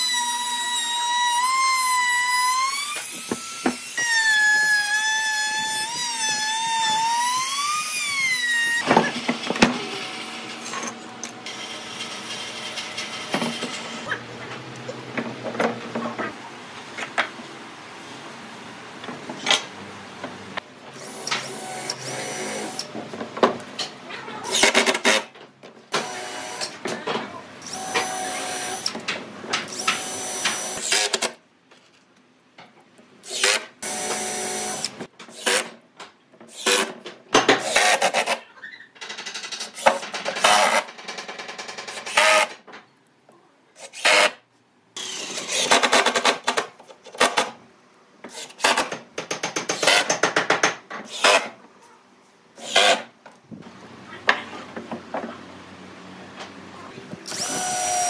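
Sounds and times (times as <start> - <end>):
power tool whine: 57.3 - 58.0.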